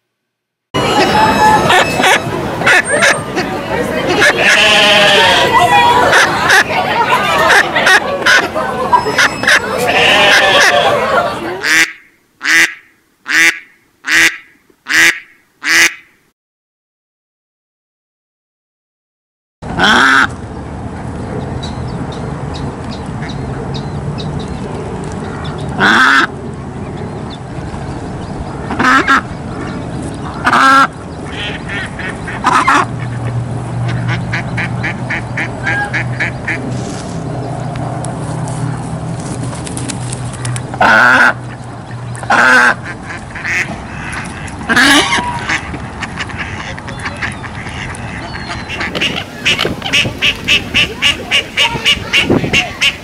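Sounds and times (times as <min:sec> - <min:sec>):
ducks quacking: 0:00.8 - 0:16.1, 0:19.7 - 0:20.4, 0:25.5 - 0:26.3, 0:28.6 - 0:36.8, 0:40.5 - 0:53.0.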